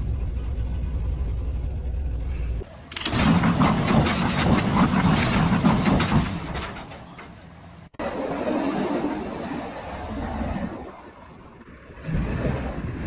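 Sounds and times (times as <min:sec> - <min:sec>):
truck engine running: 0:00.0 - 0:08.0
engine and wind rush: 0:00.0 - 0:13.0.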